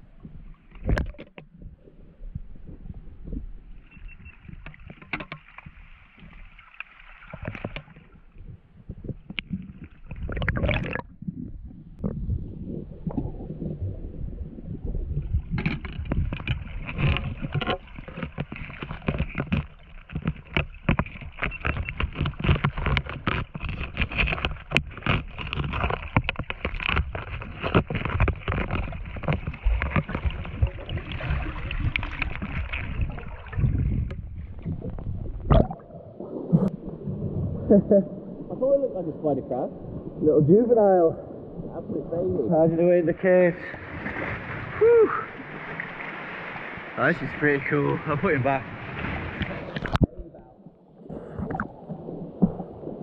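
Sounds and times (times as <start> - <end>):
muffled underwater rumble: 0.0 - 6.4, 7.3 - 46.0, 46.9 - 53.0
dense crackling and clicking: 15.2 - 35.8.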